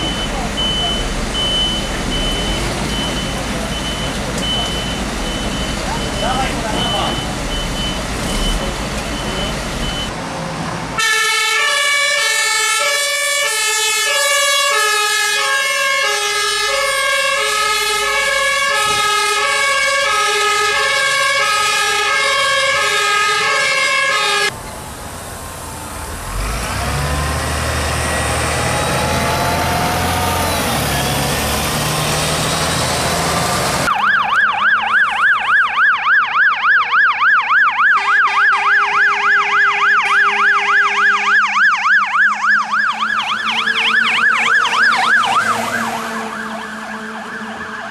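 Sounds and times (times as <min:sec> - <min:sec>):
bus engine running: 0:00.0 - 0:11.0, 0:24.5 - 0:33.9
street noise: 0:00.0 - 0:47.9
two-tone hi-lo siren: 0:11.0 - 0:24.5, 0:33.8 - 0:47.9
fast yelping siren: 0:33.8 - 0:47.9.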